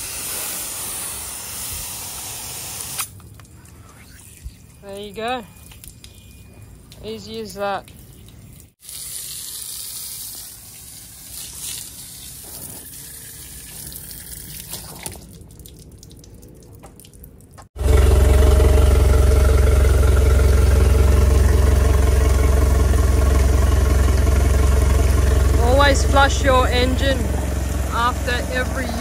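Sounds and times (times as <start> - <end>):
hose spray hissing: 0.0 - 3.1
outboard motor idling: 17.8 - 29.0.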